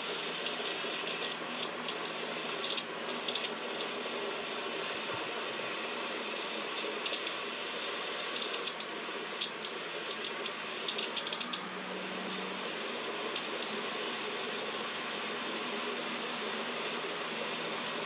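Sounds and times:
steady hiss: 0.0s - 18.0s
sharp mechanical clicks: 1.3s - 3.9s, 8.3s - 11.6s.

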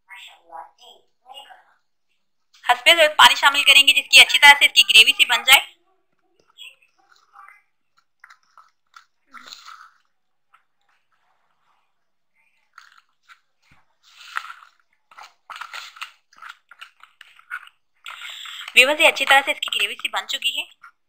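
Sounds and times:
spoon stirring batter in bowl: 6.1s - 21.0s.

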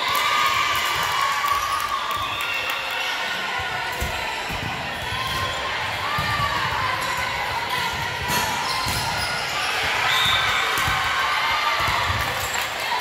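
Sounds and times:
echoing hubbub in hall: 0.0s - 13.0s
sneakers squeaking: 4.0s - 11.0s.

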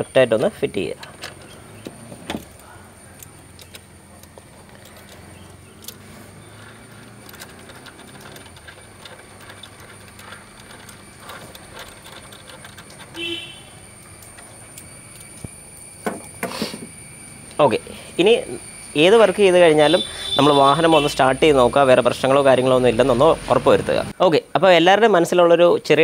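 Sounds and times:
ratchet wrench clicking: 3.2s - 13.4s.

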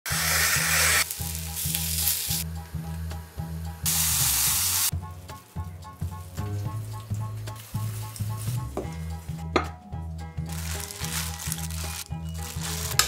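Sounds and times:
potato sizzling in a pan: 0.1s - 4.9s, 10.5s - 13.0s
background music with beat: 1.0s - 13.0s.

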